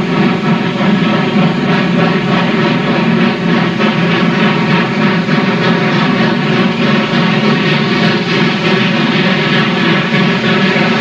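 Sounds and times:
steam locomotive exhaust roar: 0:00.0 - 0:11.0.

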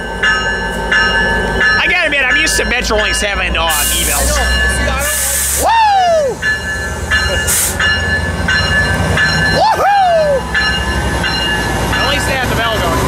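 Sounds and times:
idling locomotive engine rumble: 0:00.0 - 0:13.0
locomotive bell ringing: 0:00.0 - 0:13.0.

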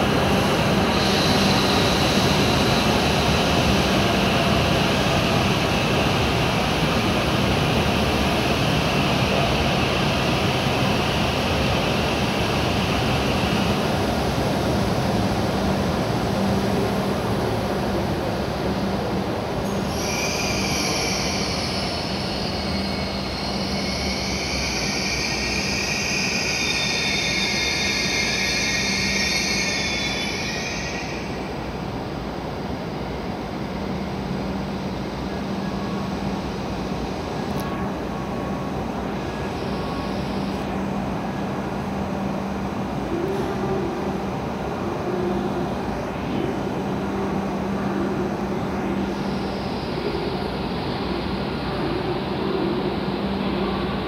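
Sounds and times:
train brakes squealing: 0:00.8 - 0:03.8, 0:19.7 - 0:31.7.

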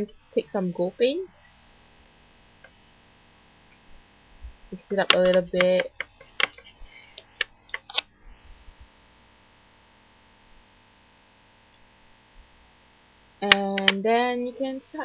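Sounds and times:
faint hum: 0:00.0 - 0:15.0
paintbrush clicking on plastic palette: 0:04.9 - 0:06.7, 0:07.3 - 0:08.0.

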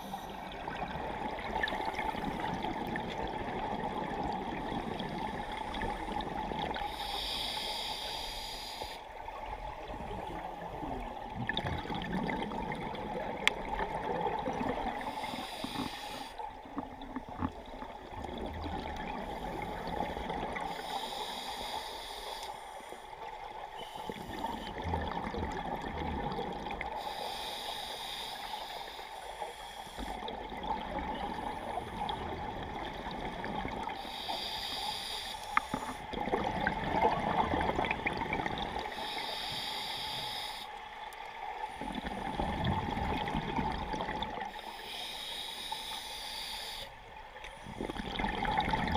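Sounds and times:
regulator hiss on inhale: 0:00.0 - 0:00.5, 0:06.8 - 0:09.2, 0:15.0 - 0:16.5, 0:19.2 - 0:23.2, 0:23.8 - 0:24.8, 0:26.9 - 0:30.3, 0:33.8 - 0:36.1, 0:38.8 - 0:40.9, 0:44.4 - 0:48.0
bubbling gurgling exhales: 0:47.7 - 0:48.9.

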